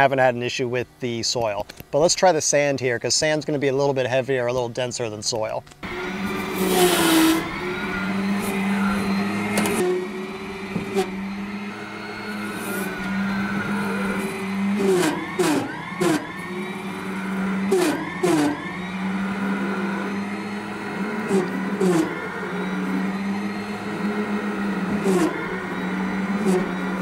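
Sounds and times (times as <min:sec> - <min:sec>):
electric motor whine: 0:05.8 - 0:27.0.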